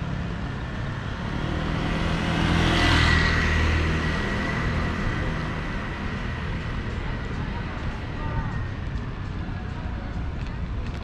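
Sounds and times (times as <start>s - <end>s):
vehicle passing by: 0.0s - 7.8s.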